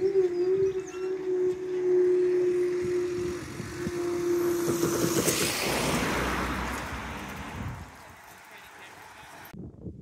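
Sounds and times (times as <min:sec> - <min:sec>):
rushing noise with low rumble: 0:02.6 - 0:08.4.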